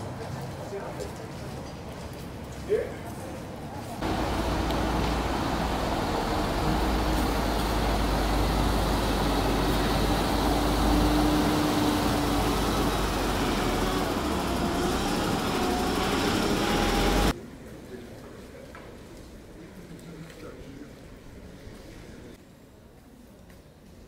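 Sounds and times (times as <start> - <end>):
truck engine running: 4.0 - 17.3.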